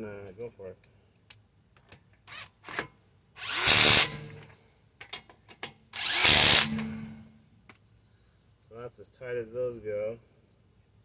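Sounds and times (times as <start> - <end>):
impact wrench spinning and hammering: 2.3 - 4.5, 5.9 - 7.3.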